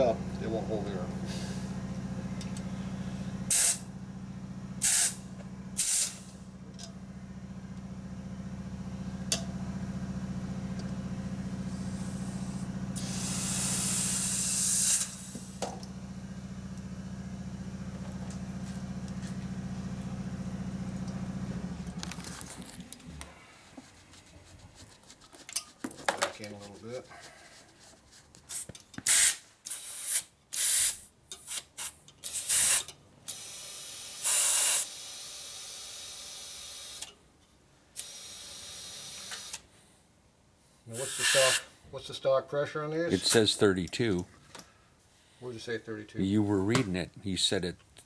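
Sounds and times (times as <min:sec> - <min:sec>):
motor hum: 0:00.0 - 0:25.5
compressed air hissing: 0:01.2 - 0:01.8, 0:03.0 - 0:03.9, 0:04.8 - 0:06.4, 0:11.7 - 0:15.6, 0:28.5 - 0:31.1, 0:32.2 - 0:37.0, 0:38.0 - 0:39.6, 0:40.9 - 0:41.8.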